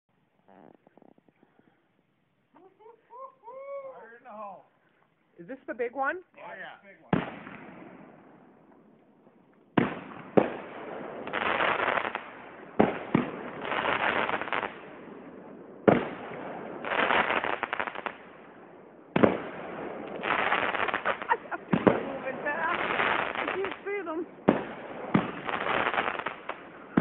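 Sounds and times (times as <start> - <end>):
firework bangs: 7.0 - 27.0
firework crackle: 7.0 - 27.0.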